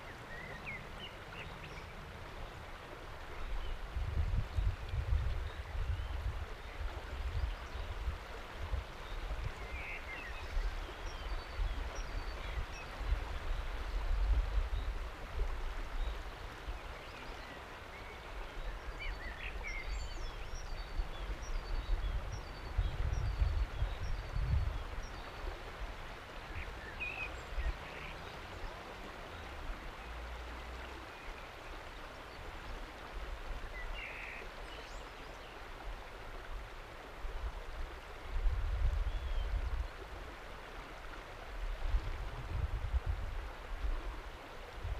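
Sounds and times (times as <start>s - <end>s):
river rushing over rock: 0.0s - 44.9s
wind buffeting microphone: 3.5s - 16.2s, 20.7s - 26.0s, 37.3s - 40.2s, 41.6s - 44.9s.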